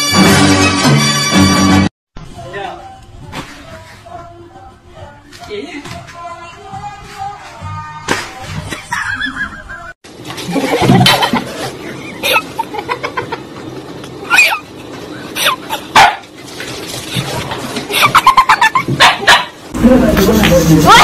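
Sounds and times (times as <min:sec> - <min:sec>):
dog barking: 0:15.9 - 0:16.3, 0:18.9 - 0:19.6.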